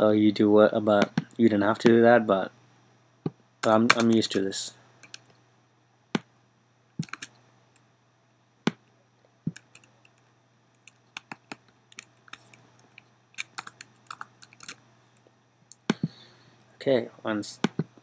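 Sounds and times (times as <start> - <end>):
computer keyboard typing: 7.0 - 7.3, 9.5 - 9.9, 10.8 - 12.6, 13.4 - 14.8.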